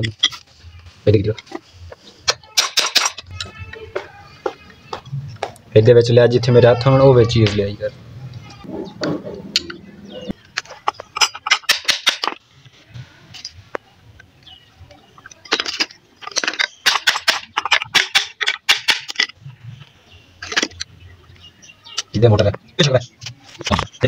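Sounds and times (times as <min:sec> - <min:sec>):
metallic knocks and clicks: 0:02.3 - 0:03.6, 0:10.4 - 0:12.4, 0:15.4 - 0:19.4.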